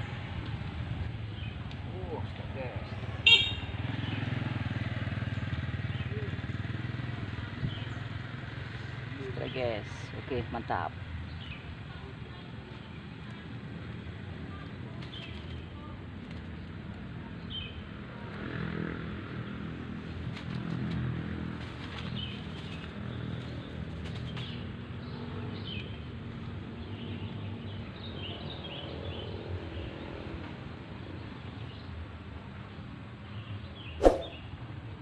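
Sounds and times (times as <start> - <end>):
small birds chirping: 0.0 - 17.9, 21.8 - 26.2.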